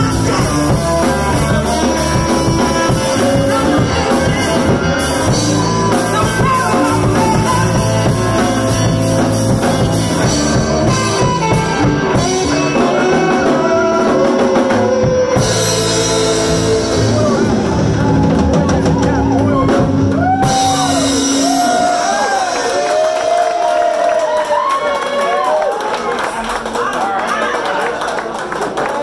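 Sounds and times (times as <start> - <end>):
woman singing: 0.0 - 9.0, 12.1 - 17.4
saxophone: 0.0 - 22.7
drum kit: 0.0 - 24.6
electric guitar: 0.0 - 24.8.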